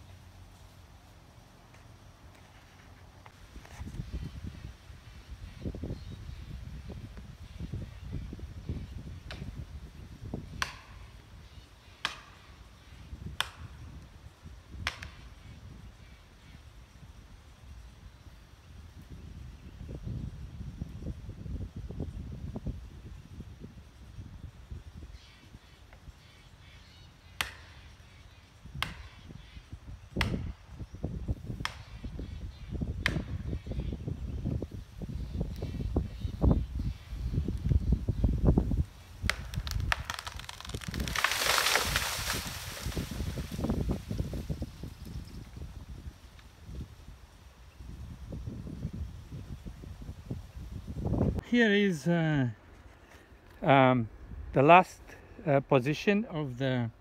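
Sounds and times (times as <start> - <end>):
hand tool striking tree: 39.2 - 43.2.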